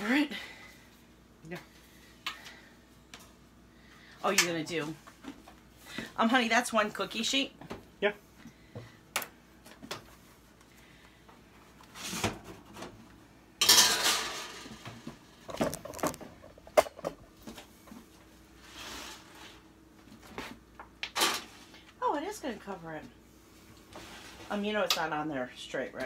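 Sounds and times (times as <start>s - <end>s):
metal bakeware clattering: 13.6s - 14.7s.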